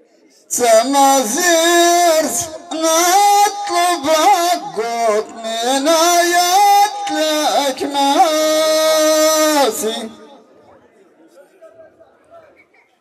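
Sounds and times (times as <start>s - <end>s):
man singing unaccompanied: 0.5s - 10.5s.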